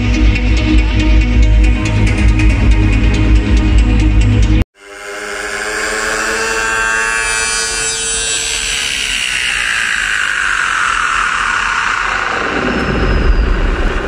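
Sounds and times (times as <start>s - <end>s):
sustained synth chord: 0.0s - 10.0s
sweeping noise wash: 4.8s - 14.0s.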